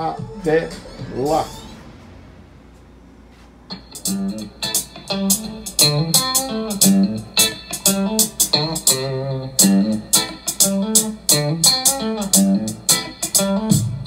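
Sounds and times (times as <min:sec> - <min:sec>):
pop-rock music: 0:03.7 - 0:14.0.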